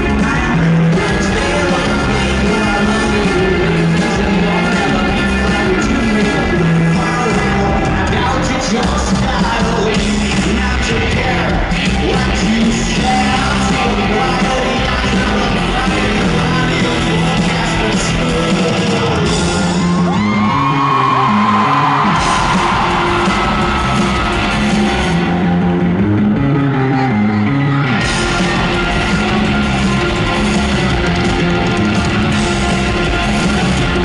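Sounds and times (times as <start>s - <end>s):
person singing: 0.0s - 24.8s
live rock band playing: 0.0s - 34.0s.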